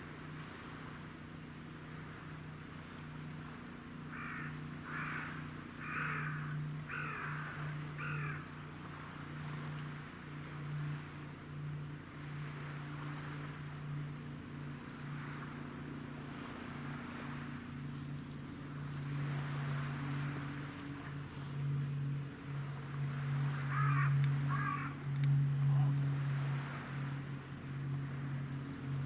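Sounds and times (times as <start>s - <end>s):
steady low hum: 0.0s - 29.0s
crow cawing: 4.1s - 8.5s, 23.7s - 25.0s.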